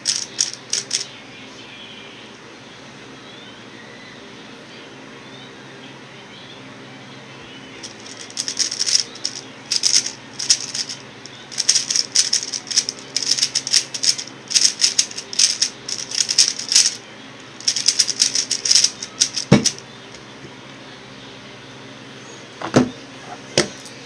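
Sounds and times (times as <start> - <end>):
rapid plastic clicking of cube: 0.0 - 1.1, 7.8 - 17.0, 17.6 - 19.8
electric fan humming: 0.0 - 24.0.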